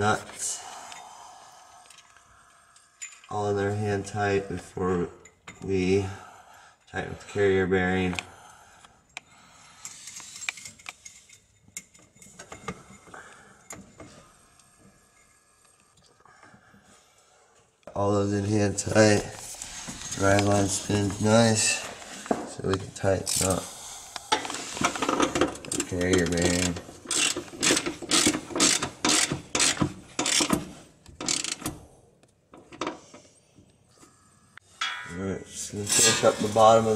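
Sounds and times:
metal nuts and bolts clicking: 24.3s - 31.8s.

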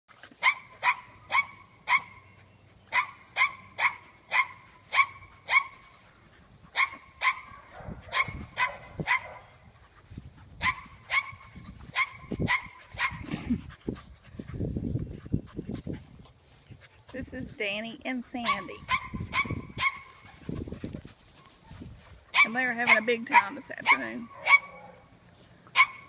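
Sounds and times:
dog barking: 0.4s - 2.2s, 2.9s - 5.8s, 6.8s - 9.5s, 10.6s - 13.2s, 18.5s - 20.0s, 22.4s - 25.1s, 25.8s - 26.0s.

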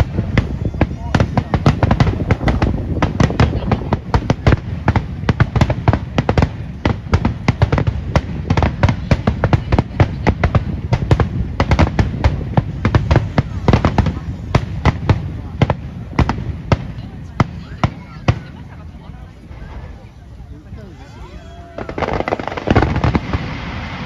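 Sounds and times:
firework shells bursting: 21.8s - 24.0s.

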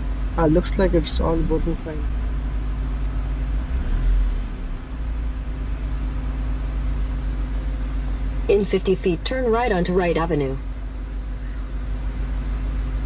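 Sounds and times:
car engine idling: 0.0s - 13.0s.

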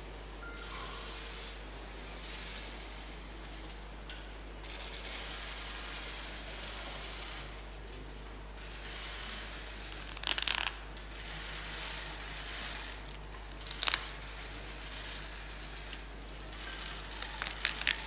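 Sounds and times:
paper wrapping rustling: 13.1s - 14.8s, 16.6s - 18.0s.

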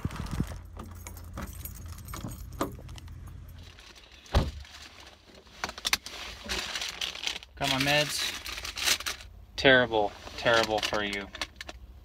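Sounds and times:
keys jangling: 0.7s - 3.5s.

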